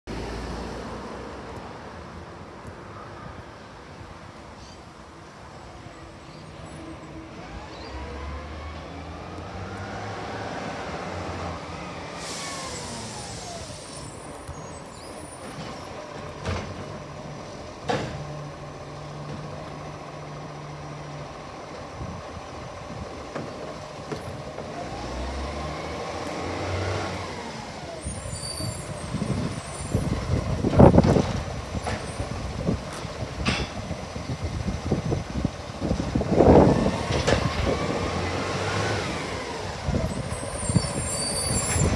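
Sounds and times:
diesel engine revving: 7.1 - 41.9
air brakes hissing: 11.8 - 15.6, 40.2 - 41.9.

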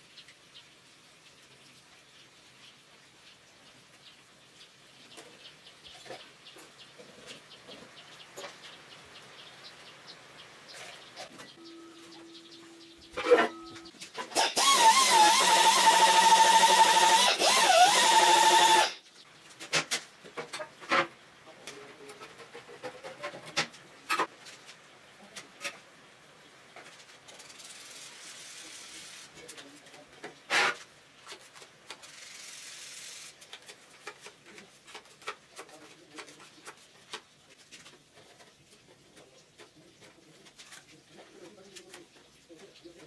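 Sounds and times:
soft rubbing hiss: 26.7 - 43.0
clicks and knocks of hand work: 33.4 - 38.6.

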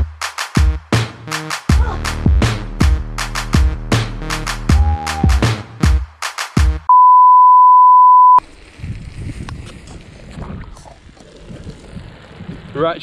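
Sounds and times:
loud steady beep: 6.9 - 8.4.

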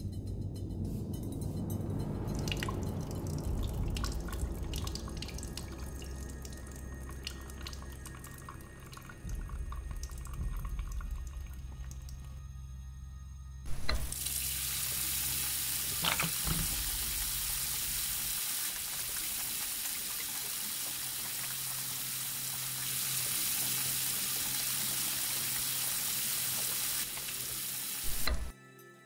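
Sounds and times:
tap water running into basin: 2.3 - 12.3, 13.7 - 28.5
faucet click: 28.1 - 28.5.

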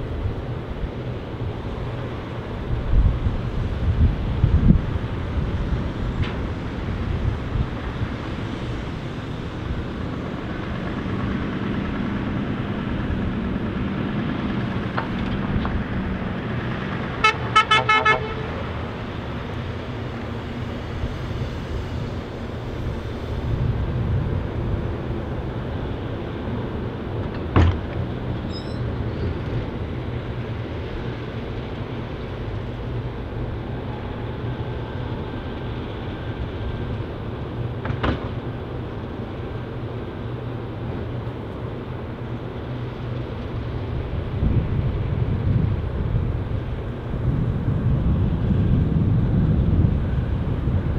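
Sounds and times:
truck engine running: 0.1 - 50.9
short horn toots: 17.2 - 18.6.

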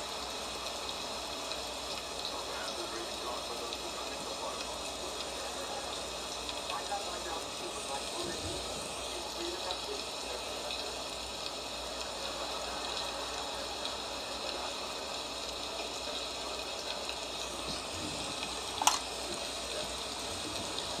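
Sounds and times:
steady rushing hiss: 0.0 - 21.0
sharp click: 18.8 - 19.1.

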